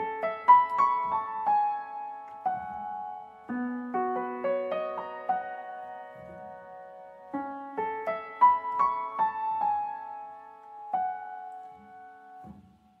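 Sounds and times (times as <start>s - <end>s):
gentle keyboard melody: 0.0s - 13.0s.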